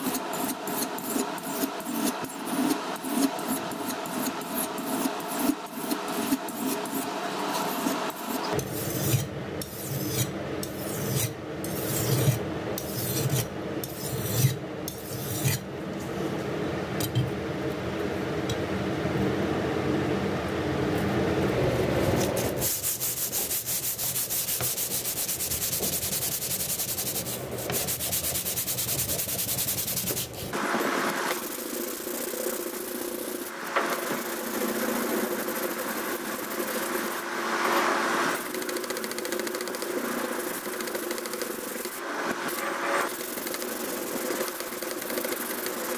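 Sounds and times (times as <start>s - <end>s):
knife scraping on sharpening stone: 8.6s - 15.6s.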